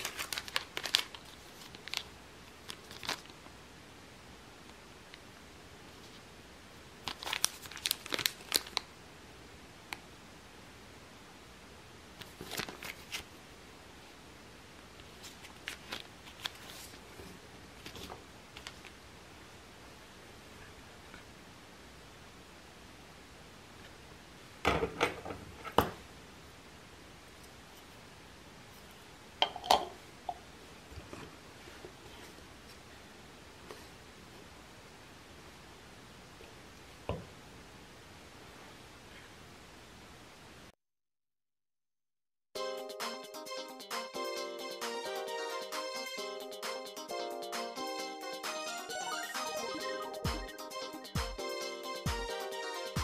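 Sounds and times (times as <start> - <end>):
plastic package crinkling: 0.0 - 3.4, 7.0 - 8.9, 12.2 - 13.3, 15.2 - 17.0.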